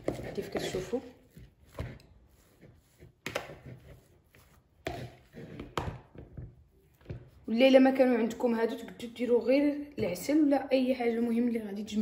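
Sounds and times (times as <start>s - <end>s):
crumbs rustling and squishing: 0.0s - 7.5s.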